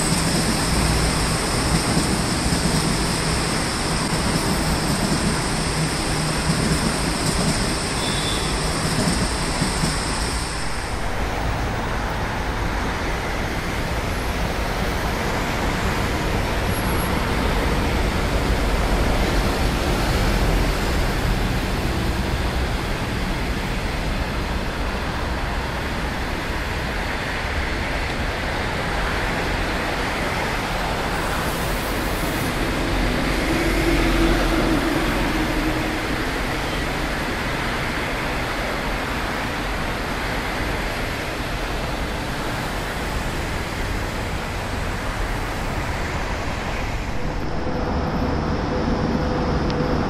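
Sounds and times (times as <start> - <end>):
train wheels rumbling on rails: 0.0 - 50.0
faint high ringing: 8.0 - 8.7.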